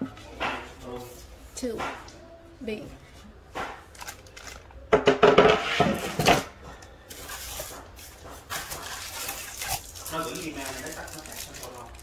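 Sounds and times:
plastic wrap crinkling: 3.9s - 4.8s, 7.1s - 12.0s.

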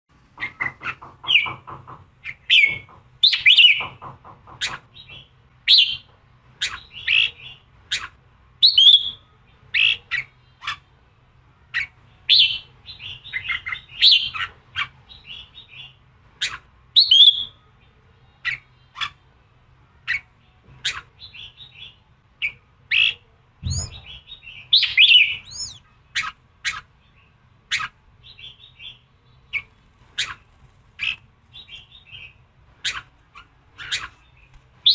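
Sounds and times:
bird singing sharp chirps: 20.1s - 26.8s
low thump: 23.6s - 24.0s.

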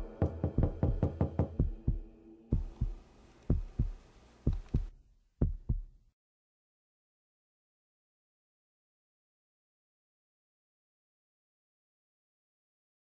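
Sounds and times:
sustained droning note: 0.0s - 2.6s
heartbeat thumps: 0.0s - 6.0s.

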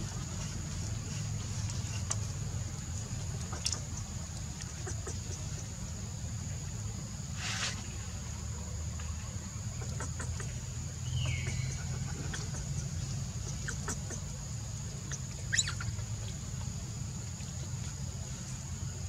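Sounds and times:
constant high hiss: 0.0s - 19.0s
high-pitched animal chirps: 15.1s - 15.9s.

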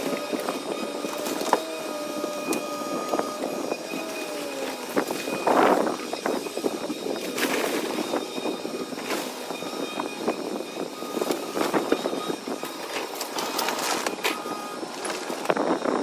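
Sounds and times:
wood cracking and snapping: 0.0s - 5.6s
excavator engine running: 0.0s - 16.0s.

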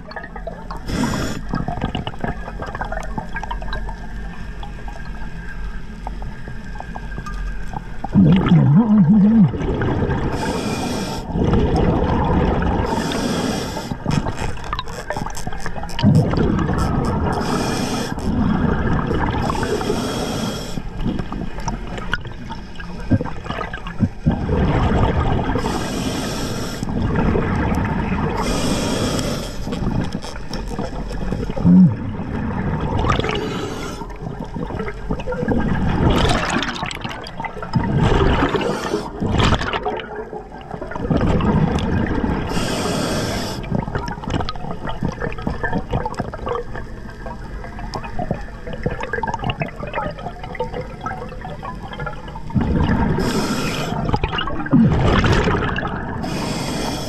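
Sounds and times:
exhaled bubbles burbling: 0.0s - 5.0s, 6.7s - 20.1s, 20.9s - 25.9s, 26.8s - 28.9s, 29.7s - 56.5s
regulator inhale hiss: 0.8s - 1.6s, 10.3s - 11.3s, 12.9s - 15.1s, 17.3s - 18.4s, 19.4s - 21.0s, 25.6s - 26.9s, 28.4s - 30.5s, 33.2s - 34.2s, 38.6s - 39.2s, 42.5s - 43.9s, 53.2s - 54.1s, 56.2s - 57.0s.

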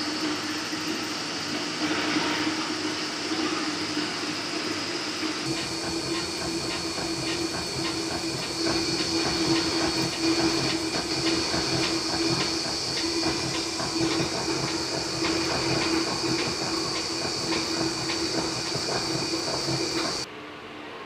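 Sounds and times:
milling machine whine: 0.0s - 20.3s
metal cutting noise: 5.5s - 20.3s.

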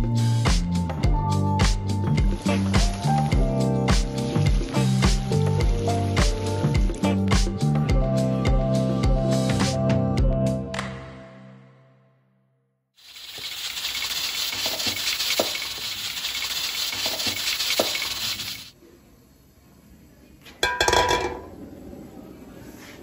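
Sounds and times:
meat sizzling in a wok: 1.9s - 7.1s, 13.0s - 18.7s.

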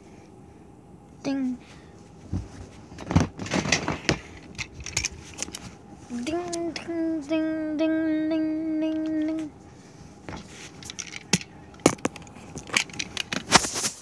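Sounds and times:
person humming a steady note: 6.1s - 9.6s.

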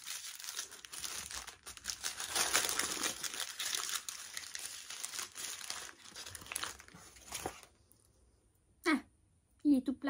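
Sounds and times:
paper wrapper crinkling: 0.0s - 7.7s.

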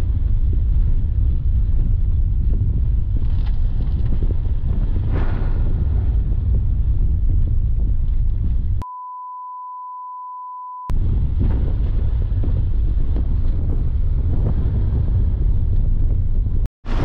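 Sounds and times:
car rumble in motion: 0.0s - 8.8s, 10.9s - 17.0s
wind buffeting microphone: 0.0s - 8.8s, 10.9s - 17.0s
high censor beep: 8.8s - 10.9s.

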